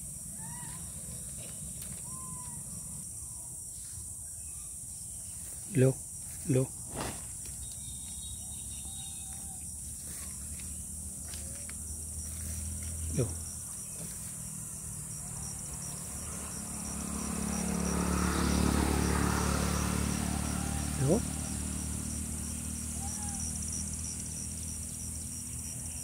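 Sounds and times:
insects buzzing: 0.0s - 26.0s
vehicle engine: 6.2s - 26.0s.

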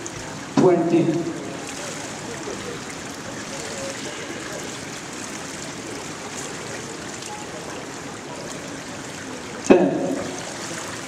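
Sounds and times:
water running into pool gutters: 0.0s - 11.0s.

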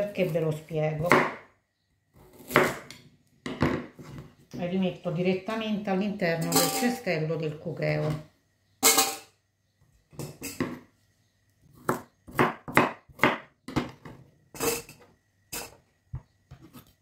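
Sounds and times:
knife chopping on wooden board: 1.0s - 1.4s, 2.2s - 2.9s, 11.8s - 14.1s.

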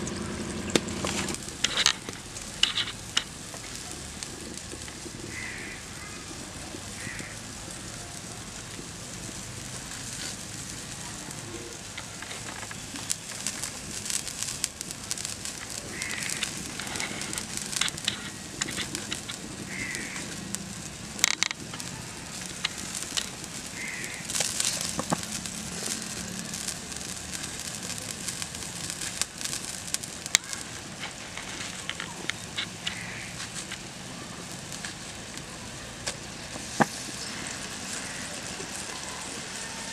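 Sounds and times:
simmering water hiss: 0.0s - 39.9s
wood fire crackling: 0.0s - 39.9s
bird calling: 15.9s - 17.0s, 19.7s - 20.4s, 23.8s - 24.4s, 32.0s - 33.4s.

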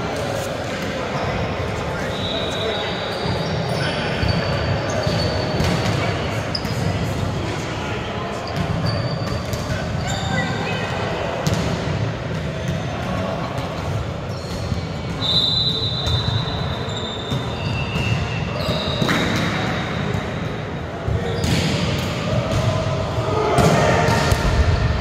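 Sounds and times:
players chattering: 0.0s - 25.0s
volleyballs hit and bouncing: 4.2s - 7.7s, 11.3s - 15.3s, 17.3s - 25.0s.

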